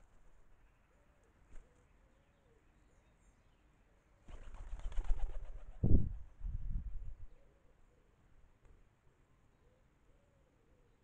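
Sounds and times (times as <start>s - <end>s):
pigeon wings flapping: 4.3s - 6.0s.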